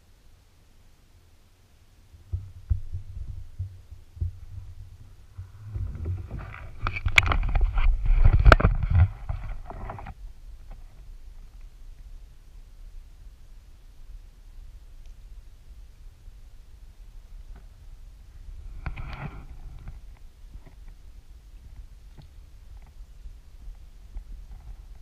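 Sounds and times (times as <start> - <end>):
sharp knocks and low thumps: 2.1 - 10.0
microphone handling noise: 2.2 - 11.6, 17.4 - 21.0
rubbing scraping and clicking: 4.2 - 11.0, 18.8 - 21.0.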